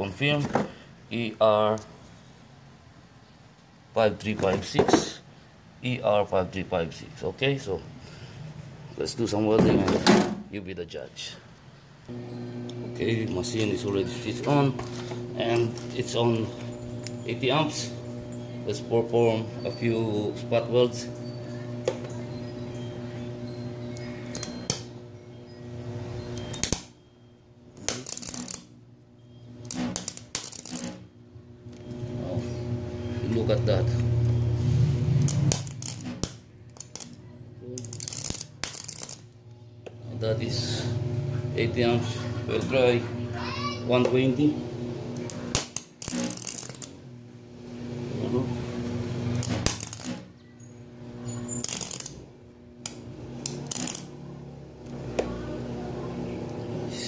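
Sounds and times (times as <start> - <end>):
welder hum: 12.1 - 26.9
welder humming: 12.1 - 26.9, 29.3 - 37.2, 39.8 - 57.0
welding arc crackle and spatter: 27.9 - 28.7, 29.7 - 31.0, 35.2 - 37.2, 37.8 - 39.2, 45.2 - 46.9, 49.3 - 50.2, 51.5 - 52.2, 53.5 - 54.1.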